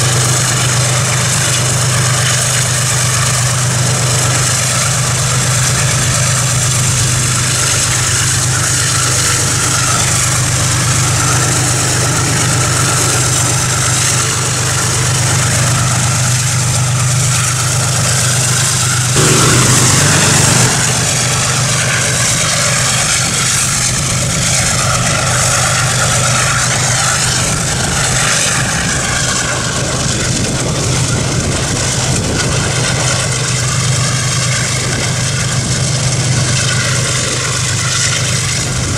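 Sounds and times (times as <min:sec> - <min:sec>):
motorcycle engine running: 0:00.0 - 0:25.6
wind noise on microphone: 0:02.6 - 0:38.9
brief louder sound: 0:19.2 - 0:22.9.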